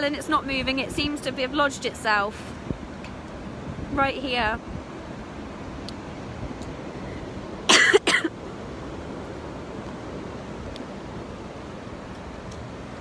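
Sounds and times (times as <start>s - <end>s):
person coughing: 7.7s - 8.3s.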